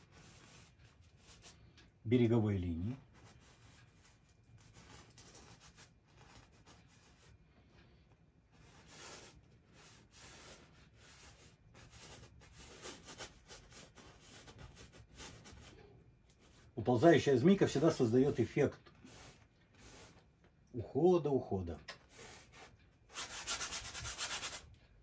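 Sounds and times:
brush scrubbing on canvas: 17.6 - 20.2.

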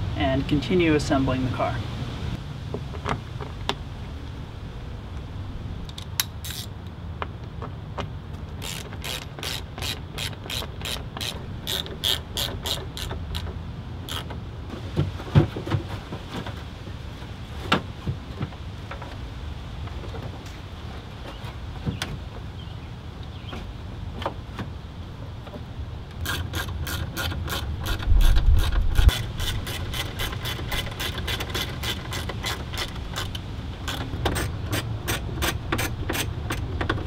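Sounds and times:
ratchet wrench clicking: 8.6 - 13.5, 14.1 - 14.3.

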